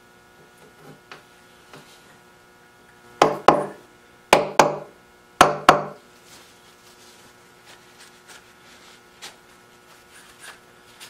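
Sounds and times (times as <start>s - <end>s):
steady electrical hum: 0.0s - 11.0s.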